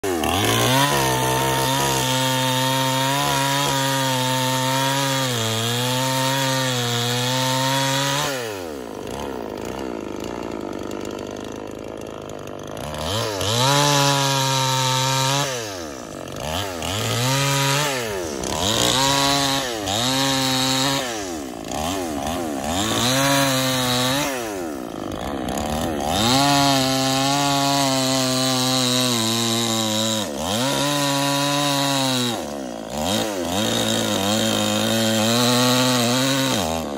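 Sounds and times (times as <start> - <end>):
chainsaw cutting and revving: 0.0 - 36.9.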